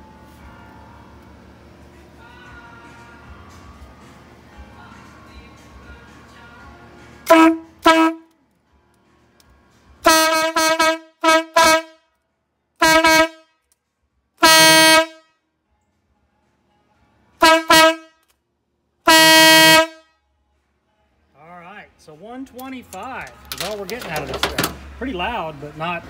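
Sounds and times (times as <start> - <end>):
train horn blasts: 7.2 - 8.3, 10.0 - 12.1, 12.8 - 13.6, 14.4 - 15.4, 17.4 - 18.2, 19.0 - 20.2.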